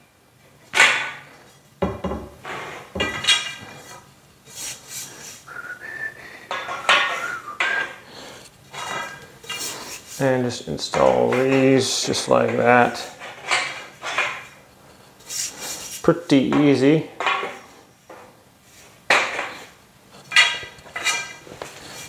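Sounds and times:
metal bed frame clanking: 1.9s - 4.0s, 8.7s - 14.6s, 20.3s - 21.5s
metal scrape: 8.7s - 12.3s, 15.2s - 16.2s, 18.8s - 22.0s.

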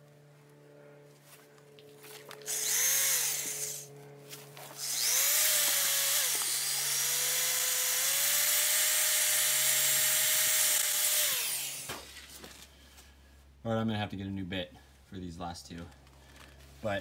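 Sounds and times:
power drill grinding against brick: 2.5s - 3.9s, 4.6s - 12.3s.

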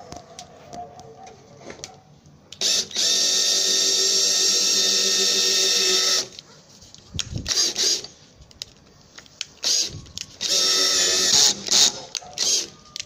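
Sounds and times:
power drill motor whine: 2.6s - 6.3s, 9.6s - 13.0s.

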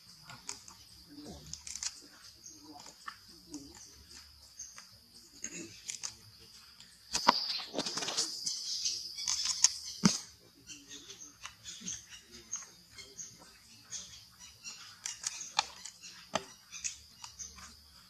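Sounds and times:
rustling leaves: 0.0s - 18.0s
sharp clicks: 0.1s - 2.1s, 5.7s - 10.3s, 14.7s - 17.8s.

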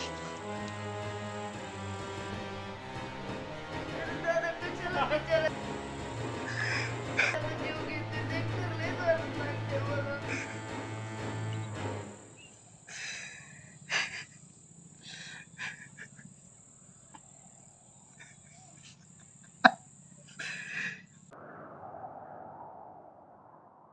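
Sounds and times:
man sobbing: 3.9s - 5.3s, 6.4s - 10.7s, 12.9s - 16.4s
sniffs and gasping breaths: 6.4s - 7.4s, 12.9s - 16.2s, 20.3s - 21.2s.

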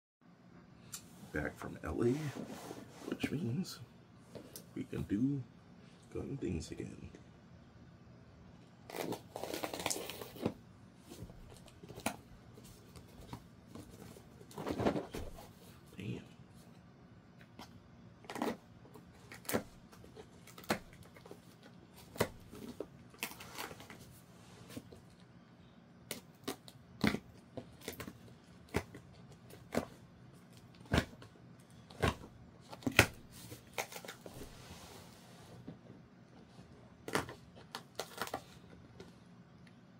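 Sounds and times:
rustling and scraping: 1.0s - 3.6s, 8.9s - 15.9s, 31.9s - 39.2s.

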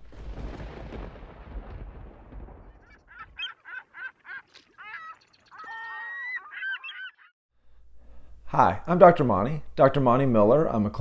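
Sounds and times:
geese honking: 2.8s - 7.3s.

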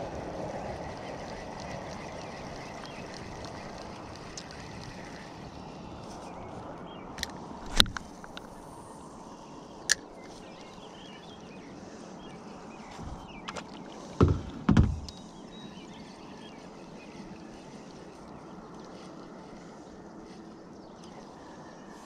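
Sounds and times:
fishing reel clicking: 0.1s - 6.0s
dull knocks on kayak hull: 14.2s - 15.1s.

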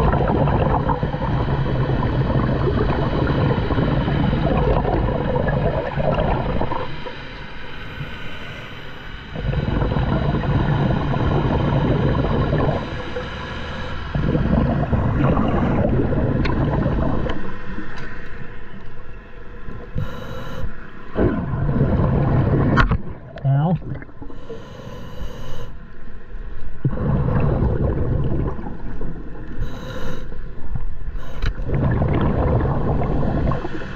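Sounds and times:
exhaled bubbles rushing: 0.0s - 7.2s, 9.3s - 19.0s, 21.1s - 24.4s, 26.7s - 29.7s, 30.4s - 33.9s
diver breathing through regulator: 7.6s - 10.0s, 20.0s - 20.8s, 24.3s - 25.8s, 29.5s - 31.7s.

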